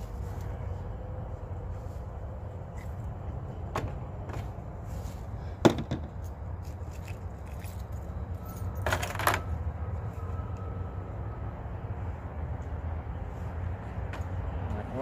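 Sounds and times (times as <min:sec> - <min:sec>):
steady low rumble: 0:00.0 - 0:08.7.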